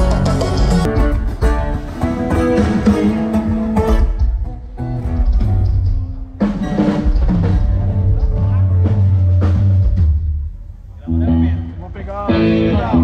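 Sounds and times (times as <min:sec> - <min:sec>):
bass guitar: 0:00.0 - 0:13.0
electric guitar: 0:00.0 - 0:13.0.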